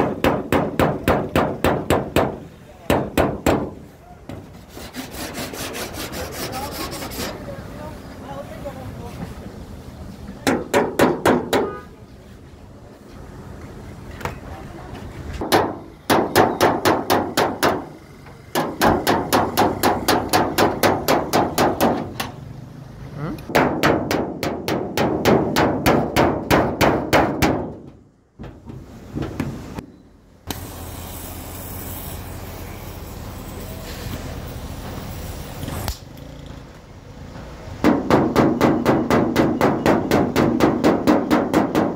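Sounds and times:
steady hiss: 30.5 - 36.1.

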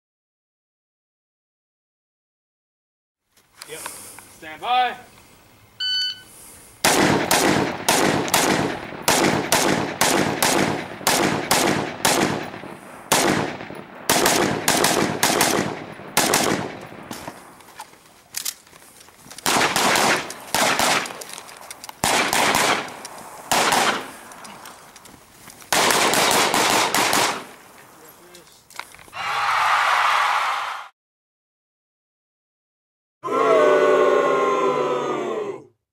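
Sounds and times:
rifle gunshots with echo: 6.8 - 17.4, 19.4 - 21.2, 22.0 - 24.3, 25.7 - 27.6.

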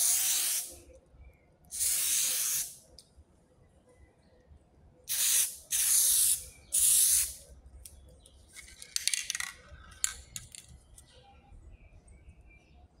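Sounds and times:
aerosol spray can hissing: 0.0 - 0.7, 1.8 - 2.8, 5.1 - 7.4
sharp clicks and light rattles: 7.8 - 11.1.

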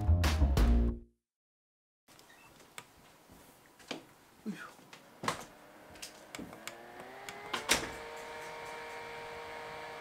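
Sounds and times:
fan motor whine: 5.5 - 10.0.

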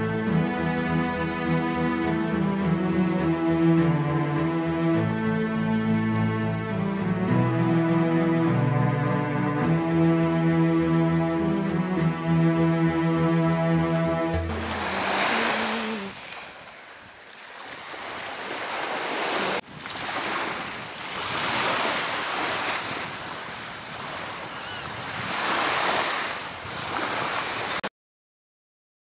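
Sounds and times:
music: 0.0 - 16.0
small waves breaking on beach: 14.5 - 27.9.

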